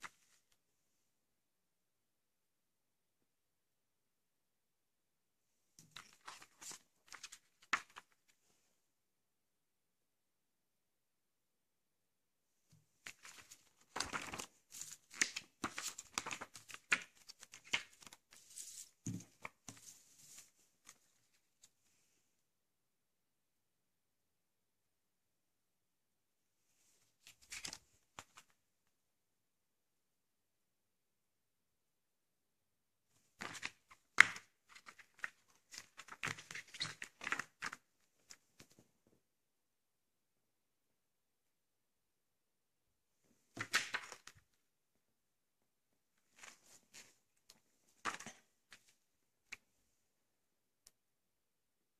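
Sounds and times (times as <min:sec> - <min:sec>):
paper rustling and crinkling: 0:05.9 - 0:08.4, 0:13.0 - 0:21.7, 0:27.2 - 0:28.6, 0:33.4 - 0:38.8
sharp paper crackle: 0:13.1 - 0:18.9.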